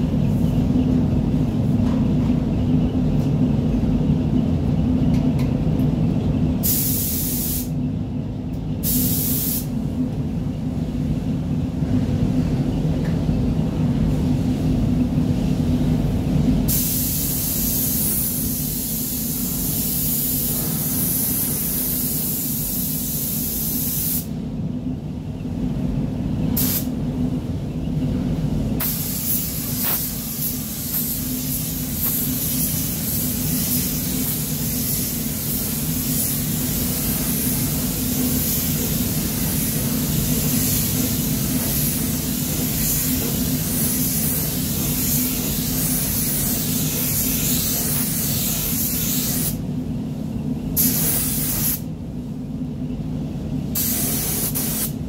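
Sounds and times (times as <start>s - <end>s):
low hum of booth fans: 0.0s - 55.0s
paint spray gun hissing: 6.6s - 7.7s, 8.8s - 9.7s, 28.8s - 49.6s, 50.8s - 51.8s, 53.8s - 55.0s.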